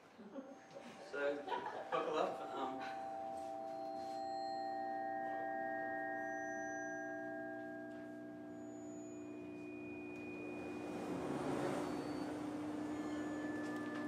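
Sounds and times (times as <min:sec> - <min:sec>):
computer music of pure tones: 0:00.4 - 0:14.0.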